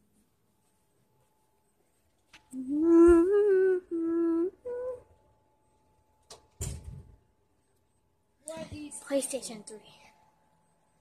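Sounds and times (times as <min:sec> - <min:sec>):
person humming: 0:02.5 - 0:05.2.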